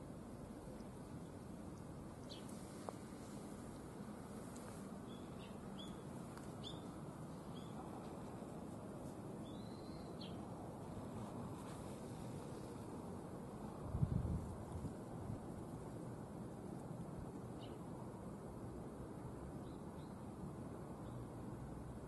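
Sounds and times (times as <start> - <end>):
outdoor background noise: 0.0 - 22.0
small birds chirping: 0.7 - 2.8, 5.0 - 7.9, 9.4 - 10.5, 17.4 - 17.9.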